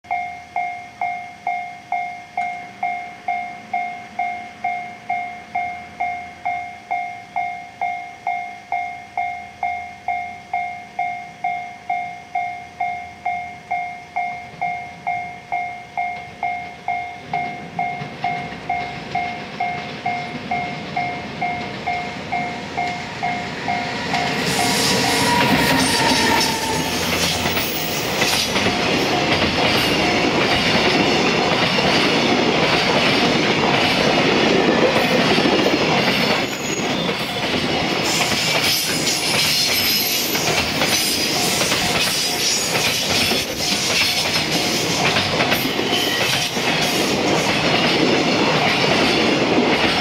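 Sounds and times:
level crossing warning bell: 0.1 - 31.8
freight train rumble: 16.2 - 50.0.

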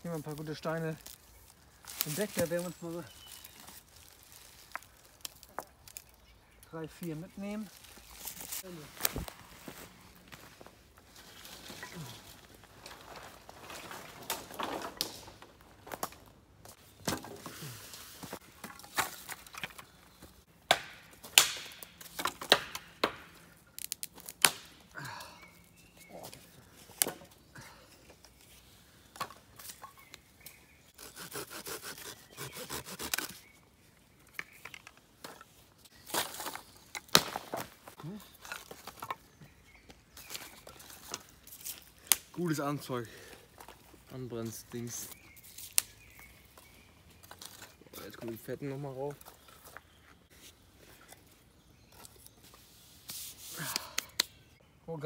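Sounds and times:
sticks snapping: 20.7 - 24.8, 41.1 - 42.4, 45.6 - 46.0, 53.6 - 54.4
rasping strokes: 31.0 - 33.4.

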